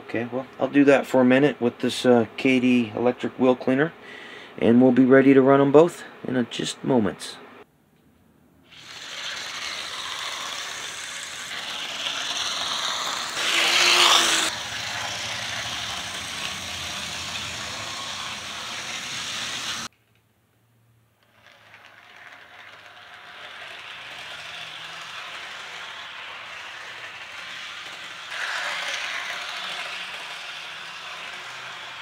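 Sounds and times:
model train whirring: 8.7 - 19.9, 21.2 - 32.0.

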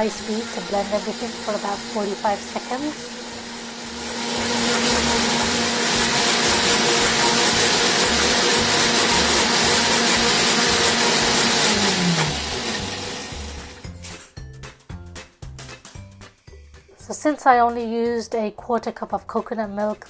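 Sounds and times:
blender running at high speed: 0.0 - 13.9.

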